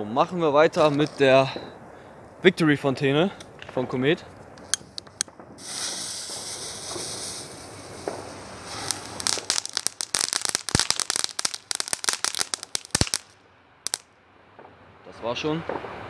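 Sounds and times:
firework fountain hissing and crackling: 4.9s - 14.0s.

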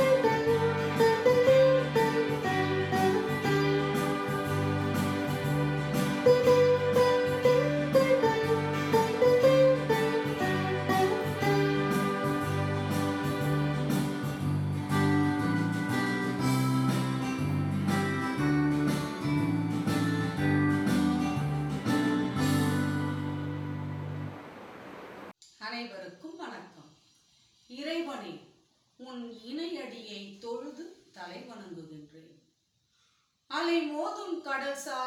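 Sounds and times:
plucked veena melody: 0.0s - 14.0s.

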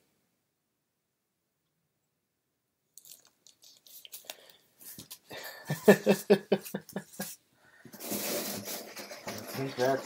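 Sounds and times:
rustling of small items: 3.0s - 5.7s, 6.6s - 10.0s
man laughing: 5.4s - 7.4s.

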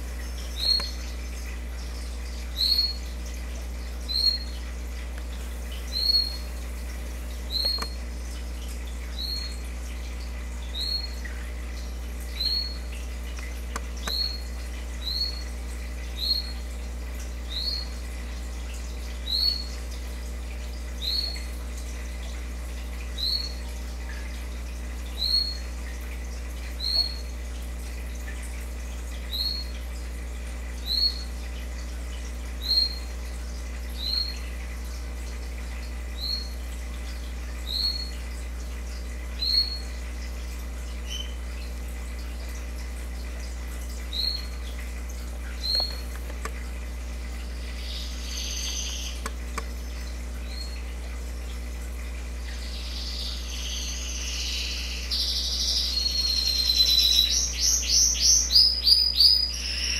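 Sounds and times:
steady low hum: 0.0s - 59.9s
woodpecker calls: 45.6s - 46.4s, 47.8s - 49.4s.

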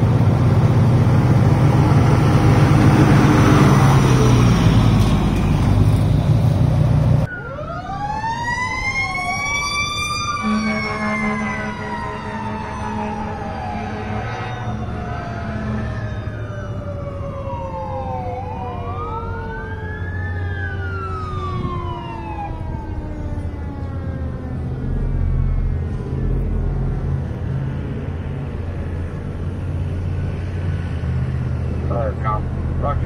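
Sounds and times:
fire engine siren wailing: 0.0s - 6.3s, 7.1s - 33.0s
truck engine rumble: 0.0s - 33.0s.

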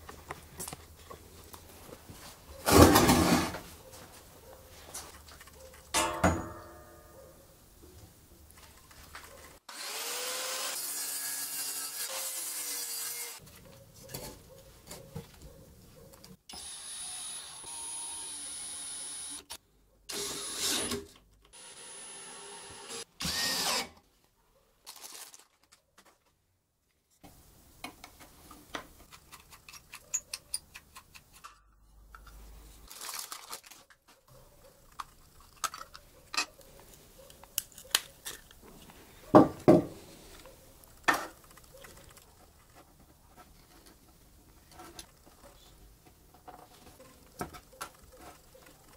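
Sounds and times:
drill driving screws: 16.5s - 24.0s.

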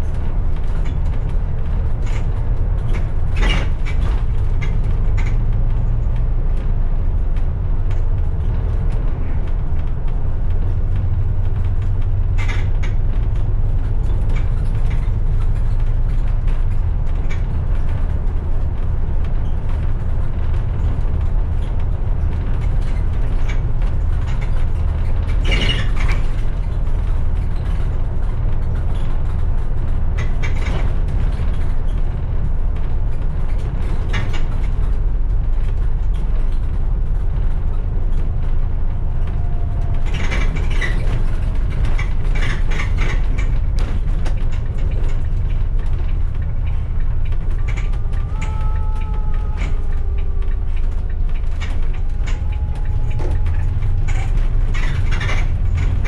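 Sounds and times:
bus engine and road rumble: 0.0s - 56.0s
rattling and creaking of bus body: 0.0s - 56.0s.

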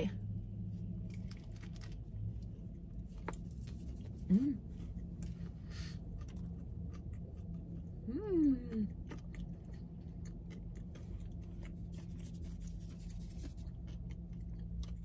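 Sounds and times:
low steady hum: 0.0s - 15.0s
person humming mmm: 8.0s - 8.9s.

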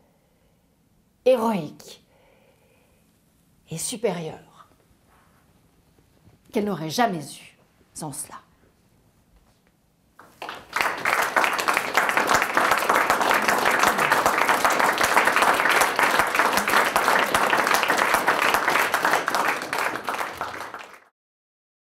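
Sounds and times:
audience applauding: 10.2s - 21.1s.

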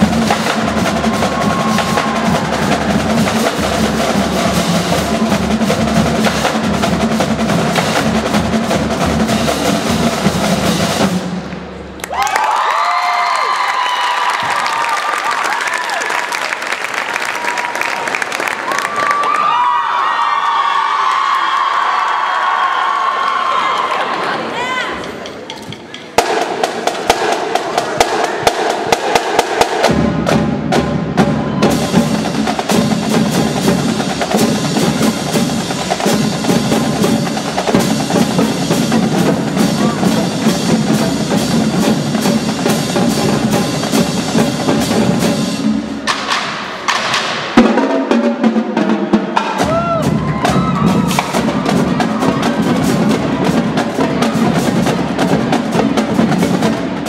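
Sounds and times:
bass drums: 0.0s - 11.5s, 26.2s - 47.8s, 49.3s - 57.0s
snare drum rolls: 0.0s - 12.5s, 25.0s - 57.0s.

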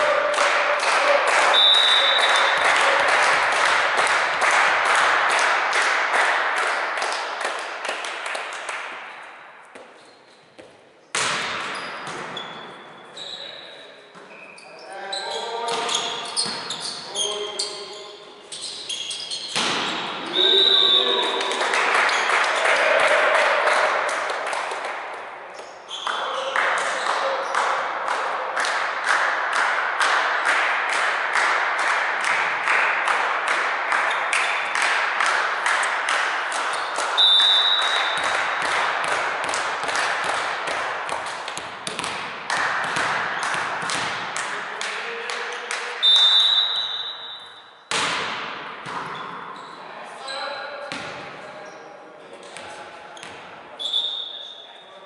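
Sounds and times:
rhythmic hand clapping: 0.0s - 9.0s, 21.2s - 25.2s, 26.1s - 46.0s
referee's whistle blowing: 1.5s - 2.6s, 20.3s - 21.3s, 37.2s - 38.2s, 46.0s - 47.7s, 53.8s - 54.6s.

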